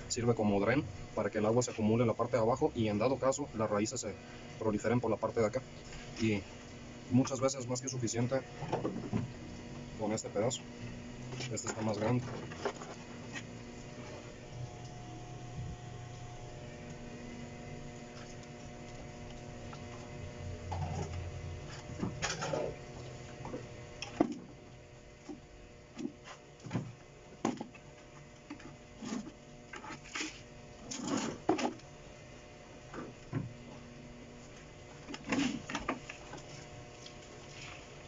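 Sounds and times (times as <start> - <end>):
faint steady hum: 0.0 - 38.0
plastic containers knocking and scraping: 8.6 - 9.3, 11.4 - 13.5, 20.6 - 22.8
rustles of potting soil: 11.3 - 14.3, 35.3 - 38.0.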